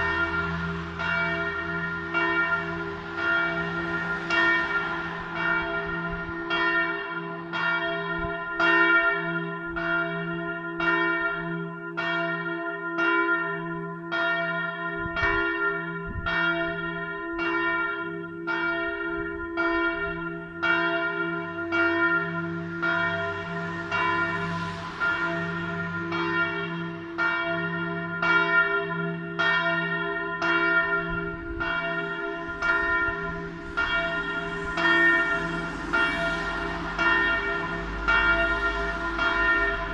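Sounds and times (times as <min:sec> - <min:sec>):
low sustained hum: 0:00.0 - 0:06.6, 0:22.2 - 0:27.1, 0:32.2 - 0:39.9
church bell tolling: 0:00.0 - 0:39.9.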